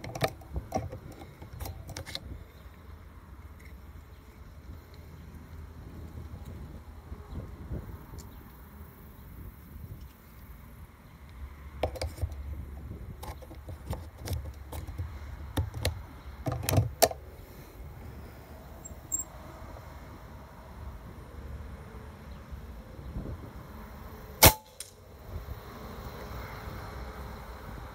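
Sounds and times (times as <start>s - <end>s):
low wind rumble: 0.0s - 27.9s
air rifle shot crack: 24.4s - 24.9s.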